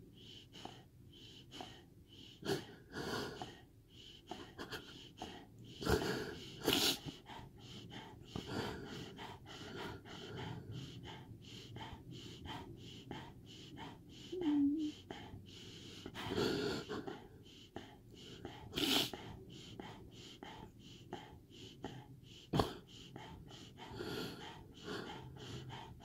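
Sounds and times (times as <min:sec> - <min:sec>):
dog breathing fast and wheezily: 0:00.0 - 0:26.0
dog gasping: 0:00.0 - 0:26.0.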